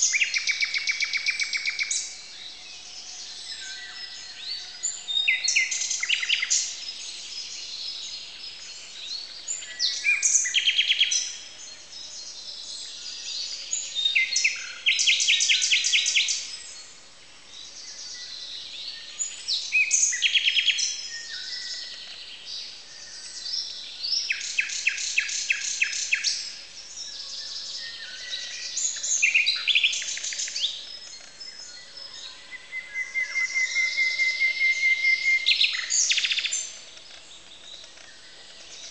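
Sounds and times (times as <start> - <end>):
nightingale singing: 0.0 - 17.0, 17.7 - 38.9
songbirds singing: 0.0 - 38.9.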